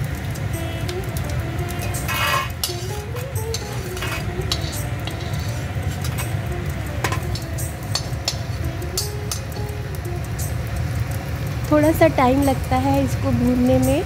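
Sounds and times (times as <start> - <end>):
soft background music: 0.0 - 14.0
pieces clinking onto steel plate: 0.4 - 9.8
metal spoon scraping in iron pan: 1.0 - 9.7.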